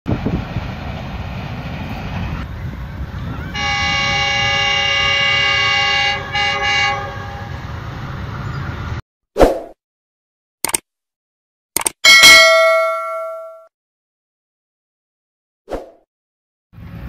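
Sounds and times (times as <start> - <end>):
locomotive horn blasts: 3.4 - 7.8.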